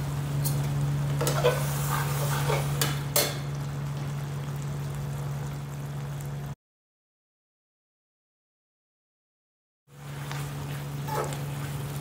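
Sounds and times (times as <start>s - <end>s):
spatula stirring and scraping pan: 1.2s - 2.9s.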